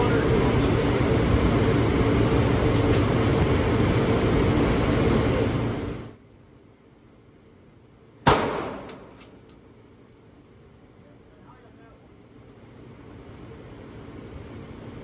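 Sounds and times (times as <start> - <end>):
ventilation rushing: 0.0 - 6.2.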